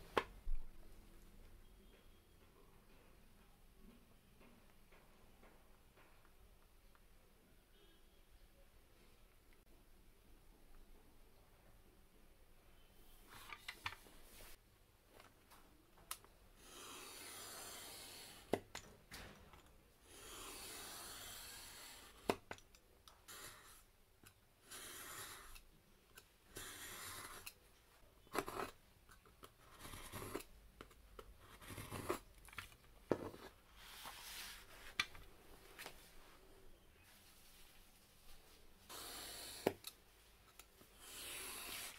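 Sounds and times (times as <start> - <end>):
knife scraping through card: 38.9 - 39.8, 41.0 - 41.9.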